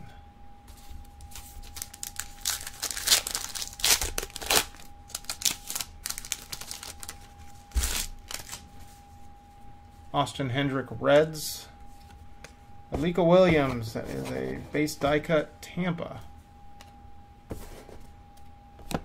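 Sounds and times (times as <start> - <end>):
foil wrapper crinkling and tearing: 1.2 - 8.6.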